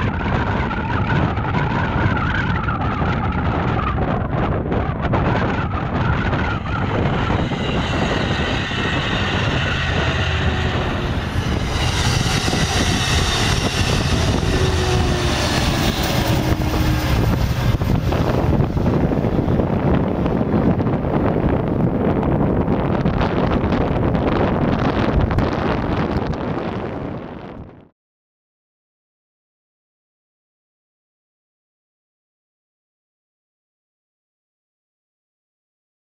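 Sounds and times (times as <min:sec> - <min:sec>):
wind buffeting microphone: 0:00.0 - 0:27.9
train wheels on rails: 0:05.1 - 0:21.1.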